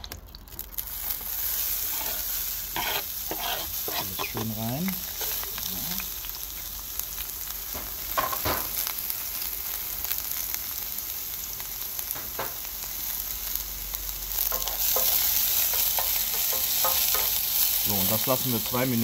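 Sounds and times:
vegetables sizzling in a pan: 0.6 - 19.0
spatula scraping a pan: 1.6 - 5.7.

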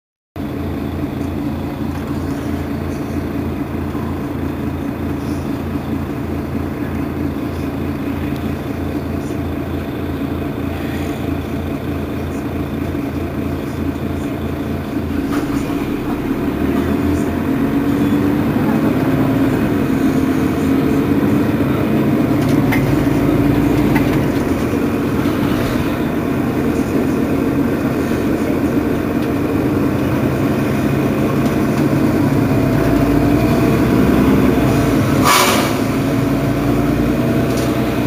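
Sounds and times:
bus engine idling: 0.4 - 38.0.

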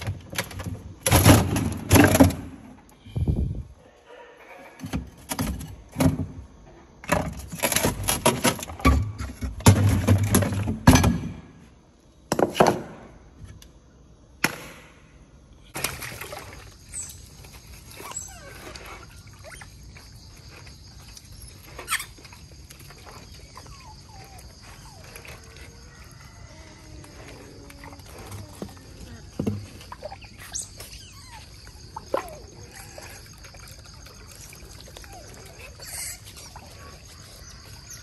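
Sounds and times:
faint squeaks: 16.9 - 33.3.

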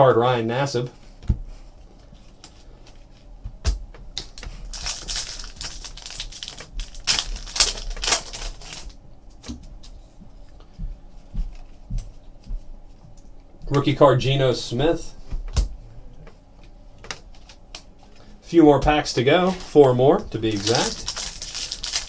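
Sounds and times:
foil wrapper crinkling and tearing: 4.2 - 9.0, 19.6 - 22.0.

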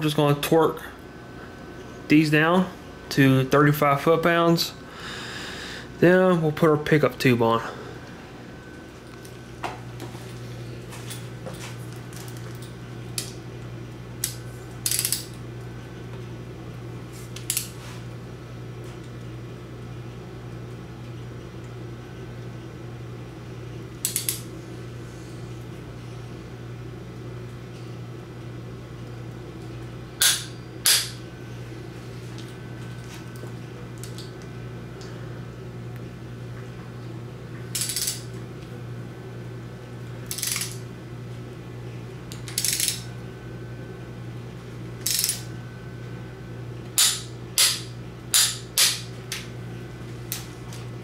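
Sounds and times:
steady low hum: 0.0 - 51.0
torque wrench clicking: 14.2 - 15.3, 24.0 - 24.4, 37.8 - 38.2, 40.3 - 40.8, 42.4 - 43.0, 45.0 - 45.4.

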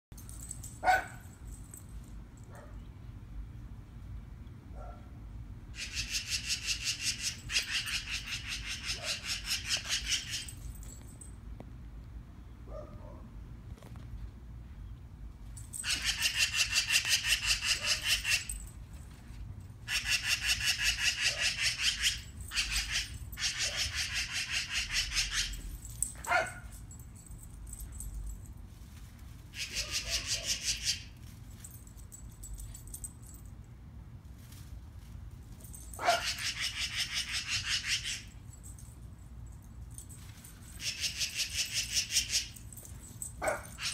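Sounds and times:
magpie chattering: 5.8 - 10.5, 15.8 - 18.4, 19.9 - 25.6, 29.6 - 31.1, 36.2 - 38.3, 40.8 - 42.5.

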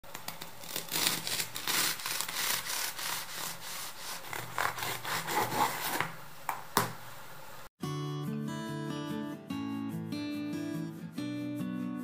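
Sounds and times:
knife sawing through crunchy crust: 0.5 - 6.2.

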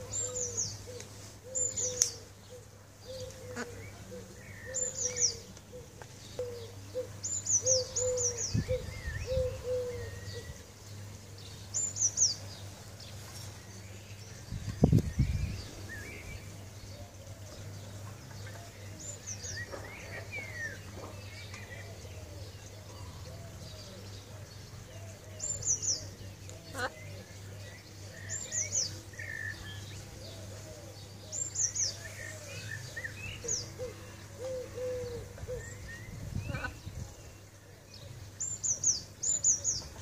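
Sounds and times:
low cooing: 0.0 - 10.6, 30.0 - 36.8.

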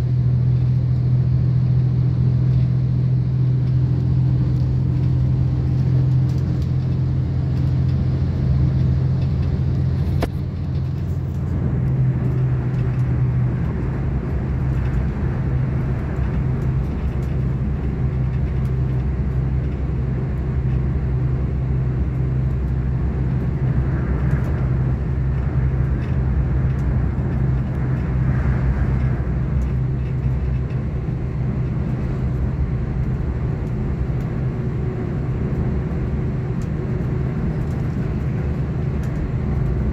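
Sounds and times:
train interior drone: 0.0 - 39.9
wheel and track noise: 0.0 - 39.9.

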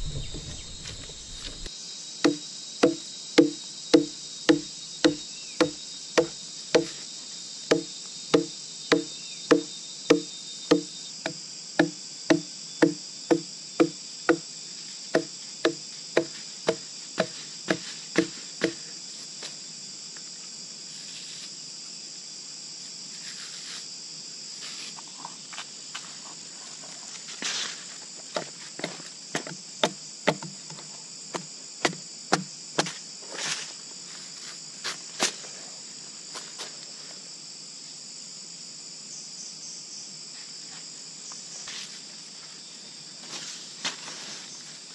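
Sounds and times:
wooden club knocking on bark: 0.0 - 1.7, 2.3 - 7.0, 7.7 - 10.9, 11.8 - 14.4, 15.2 - 18.8
insects trilling: 0.0 - 44.9.

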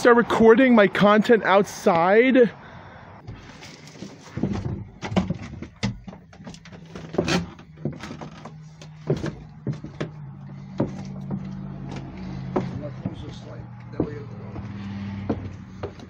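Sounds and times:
knocks and clicks of handling things: 4.2 - 13.2.

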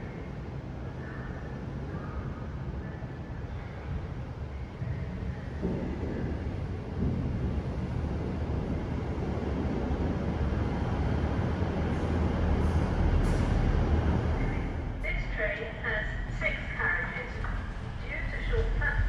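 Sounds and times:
wheel and rail noise: 0.0 - 15.1
diesel train engine rumble: 0.0 - 19.0.

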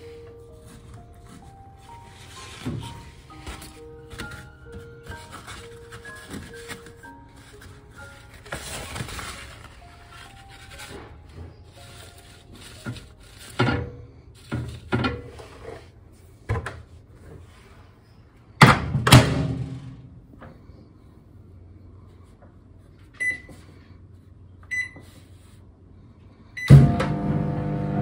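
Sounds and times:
paper towel rustling: 0.0 - 13.6
microwave door shutting: 26.7 - 27.3.

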